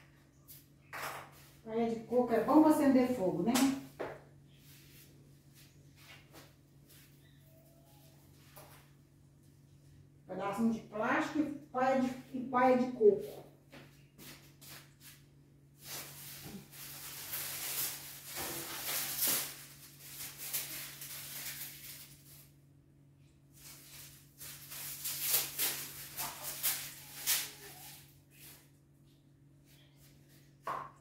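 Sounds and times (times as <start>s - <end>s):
straw and kindling crackling: 15.8s - 22.7s, 23.4s - 28.7s.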